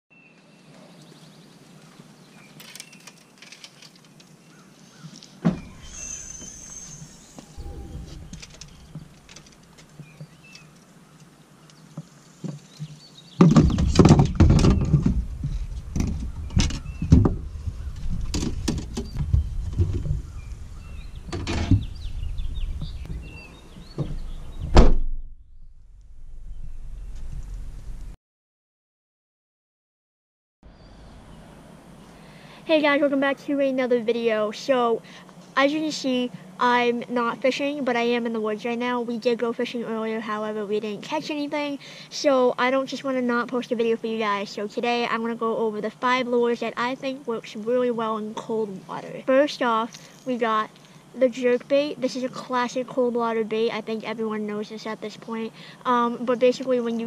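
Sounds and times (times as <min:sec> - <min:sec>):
fishing rods clacking and knocking: 0:02.6 - 0:04.3, 0:08.4 - 0:10.0
low rumble: 0:05.6 - 0:09.8, 0:25.2 - 0:28.2
rear hatch shutting thunk: 0:24.0 - 0:25.2.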